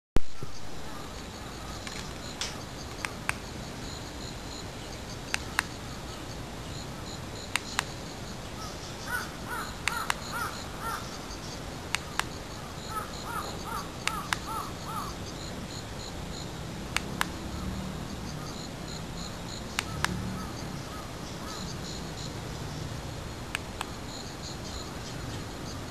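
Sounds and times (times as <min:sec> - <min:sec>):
steady hiss: 0:00.2 - 0:25.9
sharp clicks: 0:01.8 - 0:03.5, 0:05.3 - 0:05.8, 0:07.5 - 0:07.9, 0:09.8 - 0:10.5, 0:14.0 - 0:14.6, 0:16.9 - 0:17.4, 0:19.8 - 0:20.2, 0:23.5 - 0:24.0
rapid animal calls: 0:08.6 - 0:15.2, 0:19.7 - 0:22.2.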